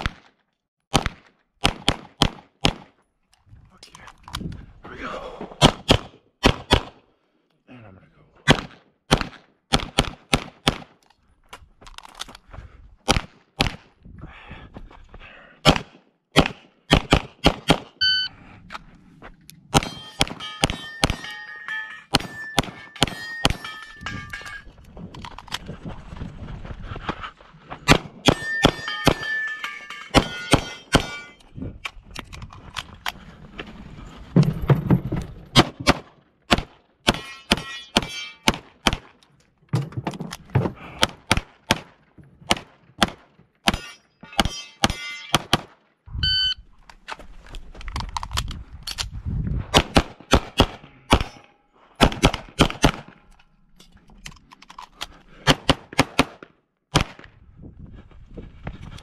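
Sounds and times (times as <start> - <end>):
pistol shots: 0.9 - 2.9, 5.6 - 7.0, 8.5 - 11.0, 15.6 - 18.0, 19.7 - 21.3, 27.9 - 29.3, 49.7 - 51.4, 52.0 - 53.2, 55.4 - 57.2
steel targets ringing: 19.8 - 24.7, 28.2 - 31.4, 37.1 - 38.6, 43.7 - 45.5.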